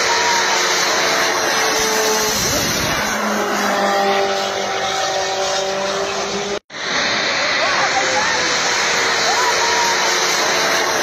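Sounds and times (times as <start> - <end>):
loud engine roar: 0.0 - 11.0
vehicle passing by: 0.9 - 9.3.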